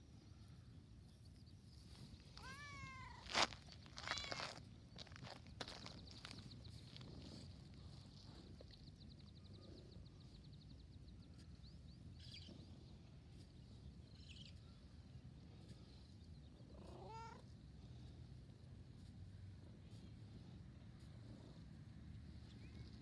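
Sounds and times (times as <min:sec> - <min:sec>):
cat meowing: 0:02.4 - 0:03.2, 0:04.0 - 0:04.4, 0:16.8 - 0:17.4.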